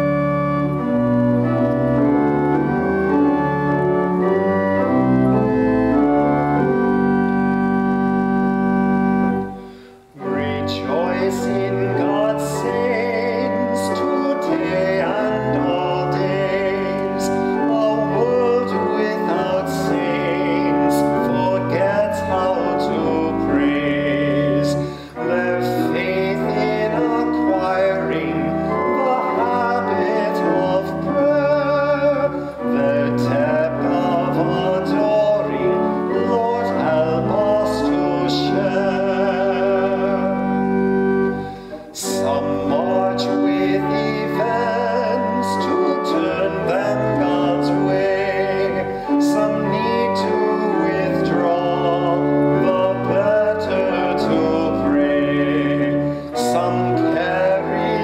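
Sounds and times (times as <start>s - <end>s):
keyboard accompaniment: 0.0s - 58.0s
congregation singing a hymn: 10.2s - 58.0s.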